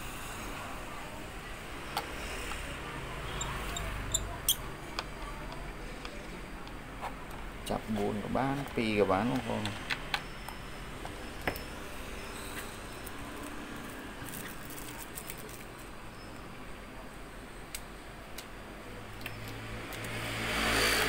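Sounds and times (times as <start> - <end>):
passing vehicle engine: 19.6 - 21.0.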